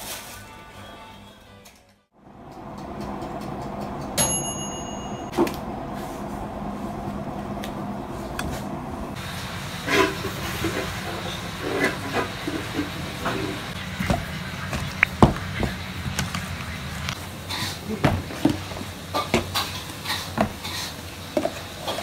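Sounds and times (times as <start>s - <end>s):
metallic ding: 4.2s - 5.5s.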